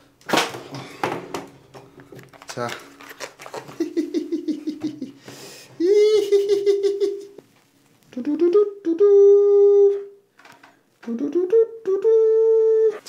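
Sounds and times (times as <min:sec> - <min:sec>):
man humming: 0:05.8 - 0:07.4, 0:08.1 - 0:10.2, 0:11.0 - 0:13.0.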